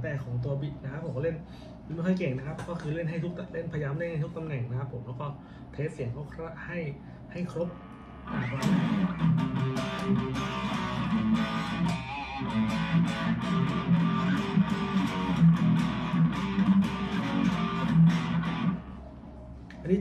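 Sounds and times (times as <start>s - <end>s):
distorted electric guitar riff: 7.8s - 19.0s.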